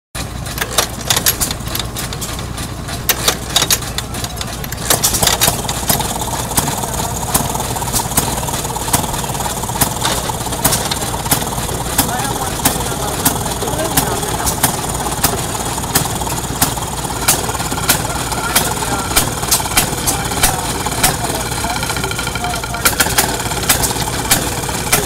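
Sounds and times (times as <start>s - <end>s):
small gasoline engine popping: 0.2s - 25.0s.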